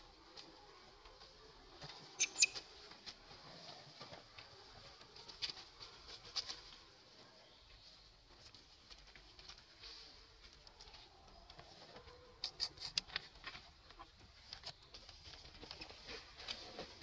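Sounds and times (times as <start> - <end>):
infant monkey squeaking: 2.2 - 2.6.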